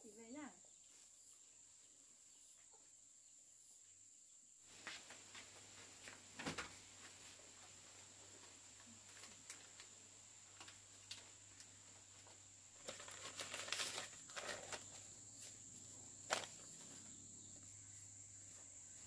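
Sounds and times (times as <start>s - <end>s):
faint rustling: 4.7s - 19.0s.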